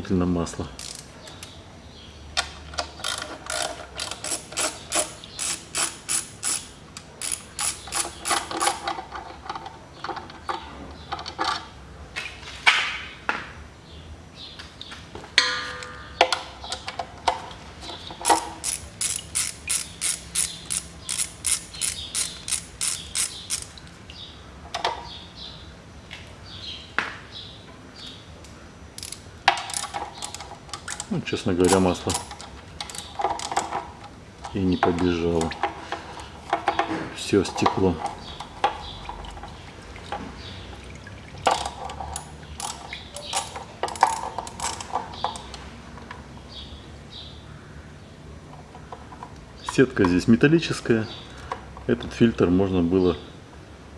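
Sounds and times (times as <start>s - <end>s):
hand ratchet clicking: 0.8s - 1.5s, 3.0s - 9.0s, 18.2s - 23.8s, 29.0s - 33.8s, 41.5s - 45.6s.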